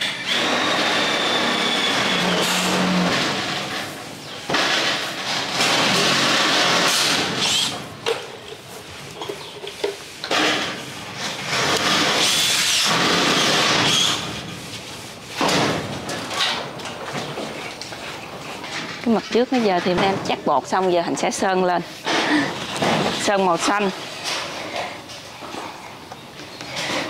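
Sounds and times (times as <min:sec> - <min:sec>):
handheld power tool running: 0:00.0 - 0:03.9, 0:04.5 - 0:07.8, 0:11.4 - 0:14.3.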